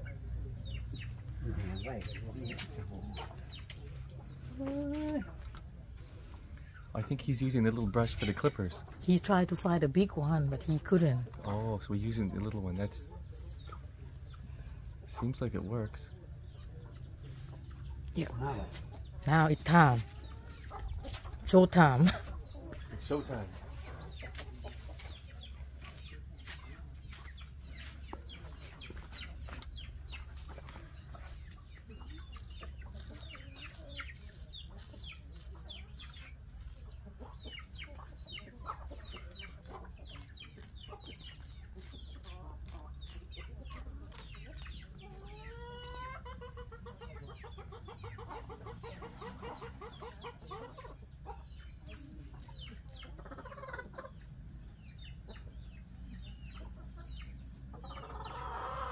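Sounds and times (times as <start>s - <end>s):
chickens clucking: 0.0s - 58.9s
razor scraping stubble: 32.2s - 36.9s, 39.3s - 45.7s.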